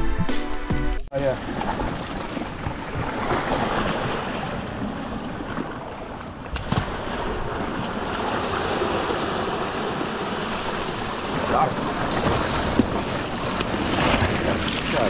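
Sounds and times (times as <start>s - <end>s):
surf washing over rocks: 1.2s - 15.0s.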